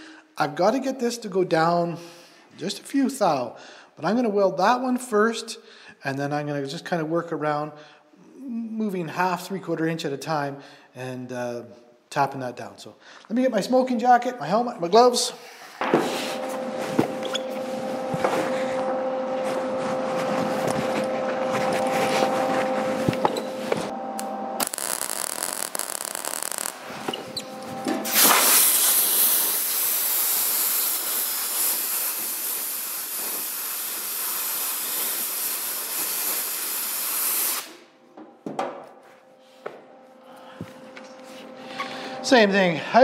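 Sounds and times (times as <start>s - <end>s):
machine hum with tones: 15.8s - 30.0s, 37.7s - 43.0s
welder crackling hiss: 24.2s - 27.1s, 28.0s - 37.8s.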